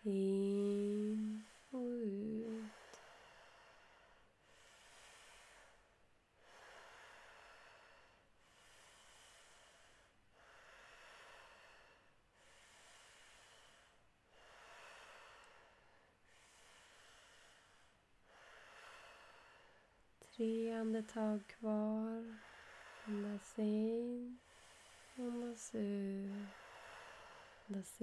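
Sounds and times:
person breathing deeply: 0.0s - 20.0s, 20.8s - 27.8s.

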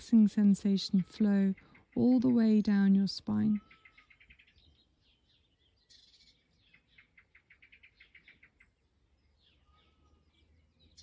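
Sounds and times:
bird chirping trill: 0.0s - 11.0s
short high bird calls: 3.6s - 4.7s, 9.4s - 11.0s.

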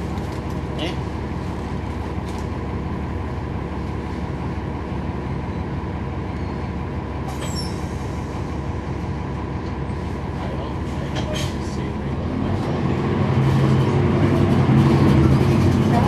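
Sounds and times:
bus diesel engine drone: 0.0s - 16.0s
road noise: 0.0s - 16.0s
short high squeak: 7.3s - 7.9s.

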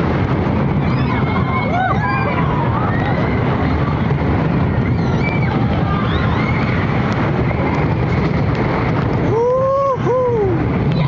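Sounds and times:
roller coaster train rumbling: 0.0s - 11.0s
wind on microphone: 0.0s - 11.0s.

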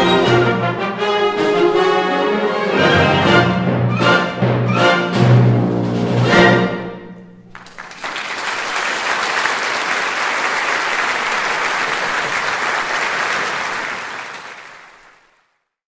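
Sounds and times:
audience applause: 7.5s - 15.6s.

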